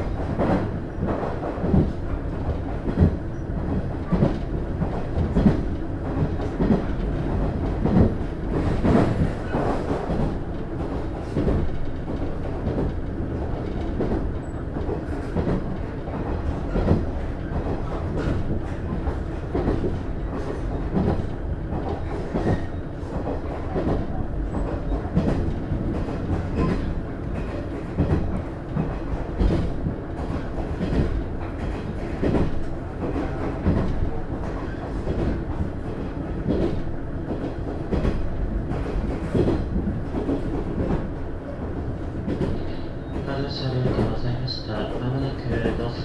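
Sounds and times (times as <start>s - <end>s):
train rumbling on rails: 0.0s - 46.0s.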